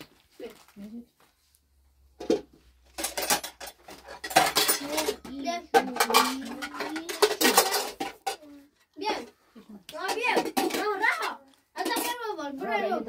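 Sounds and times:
dishes and cutlery clattering: 2.2 - 8.5, 10.0 - 12.4.

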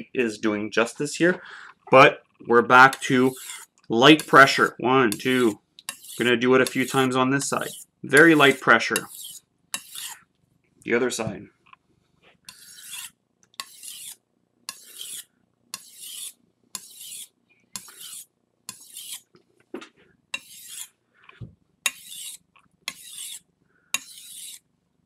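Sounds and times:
knife rasping on whetstone: 2.9 - 10.2, 12.5 - 19.3, 20.4 - 20.9, 21.9 - 23.4, 24.0 - 24.6.

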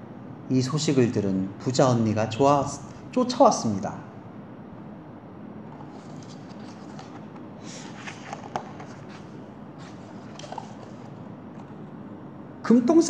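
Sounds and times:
paper page rustling: 5.7 - 11.8.

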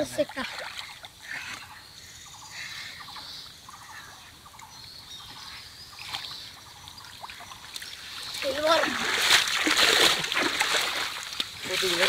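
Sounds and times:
water dripping and sloshing: 0.0 - 1.7, 5.9 - 12.0
small birds chirping: 0.0 - 9.6.

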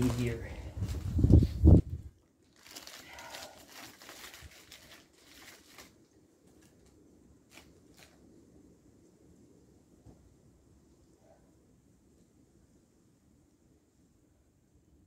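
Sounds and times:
plastic bag crinkling: 2.4 - 6.9, 7.5 - 8.2.

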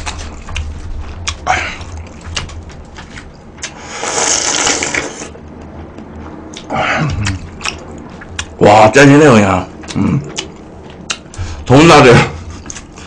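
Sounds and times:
mouth and eating noises: 0.0 - 8.8, 9.6 - 11.6, 12.2 - 13.0
person slurping soup: 3.7 - 5.3.

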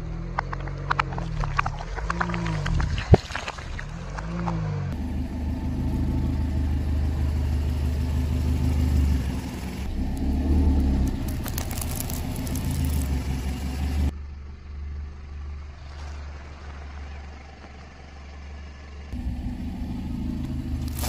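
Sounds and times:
car engine low hum: 0.0 - 21.0
sharp crackling crunches: 9.8 - 14.1, 20.3 - 21.0
tyre crushing things on asphalt: 10.3 - 13.4.

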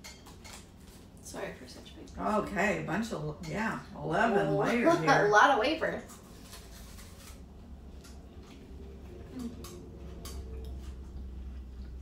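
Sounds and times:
low room hum: 0.0 - 12.0
crunching wafer bar: 6.2 - 8.2.

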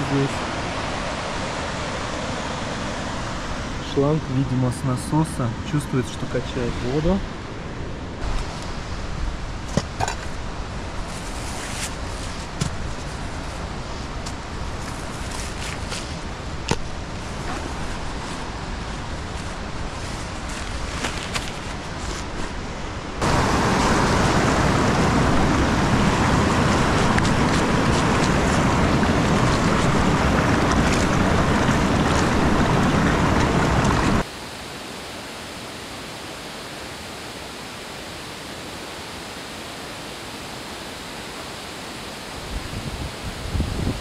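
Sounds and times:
rushing water: 0.0 - 7.5, 23.2 - 44.0.

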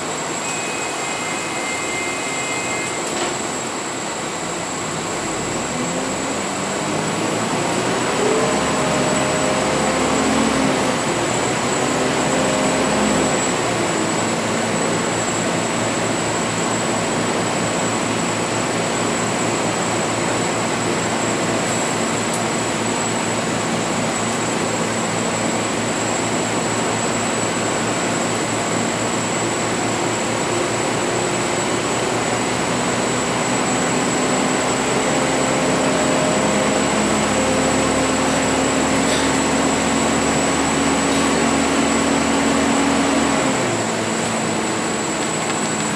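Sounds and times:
bus engine noise: 0.0 - 45.9.

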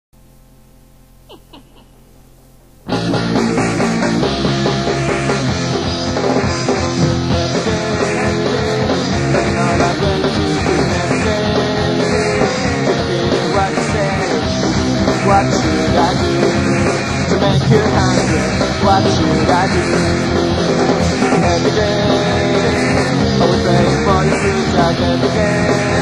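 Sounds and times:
tape hum and hiss: 0.2 - 3.2
punk rock band playing: 2.9 - 26.0.

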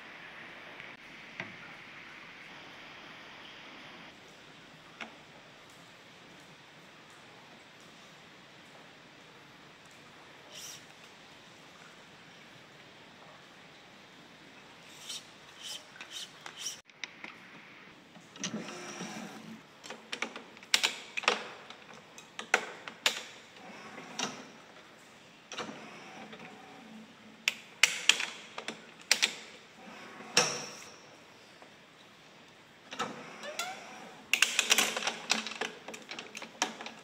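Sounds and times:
stringing machine clicks and knocks: 32.9 - 37.0.

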